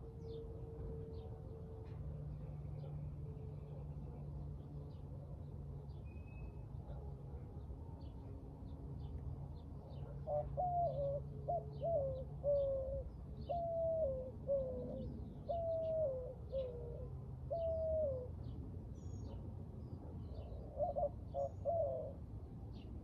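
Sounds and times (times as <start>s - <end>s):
dove cooing: 10.0s - 18.4s, 20.3s - 22.2s.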